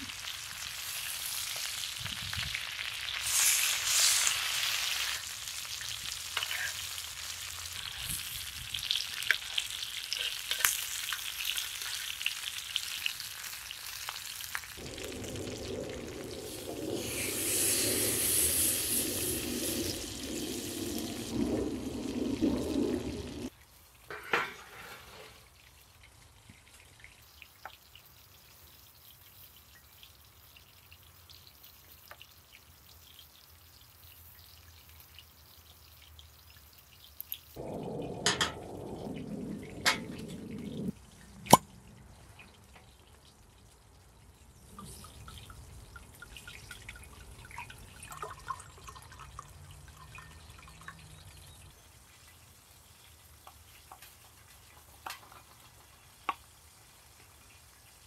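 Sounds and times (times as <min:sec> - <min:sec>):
steak sizzling in a skillet: 0:00.0 - 0:23.5.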